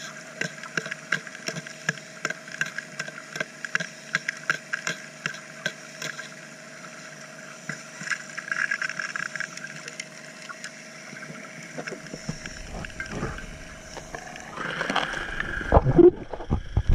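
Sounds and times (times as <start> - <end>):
underwater dredge motor hum: 0.0 - 16.9
low irregular rumbling: 11.8 - 16.9
stones knocking underwater: 15.0 - 16.9.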